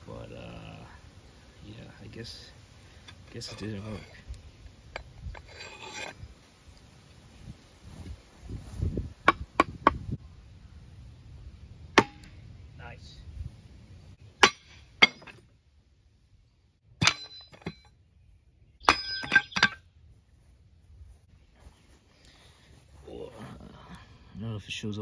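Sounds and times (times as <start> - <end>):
tomahawk striking wooden log: 9.2 - 10.0, 11.9 - 12.4, 14.4 - 15.4, 17.0 - 17.8, 18.8 - 19.8.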